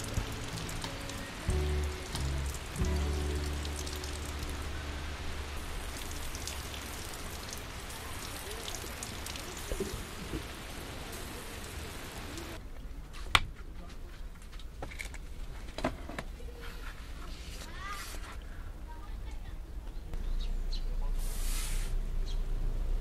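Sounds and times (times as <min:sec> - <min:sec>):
rain falling on grass: 0:00.0 - 0:12.6.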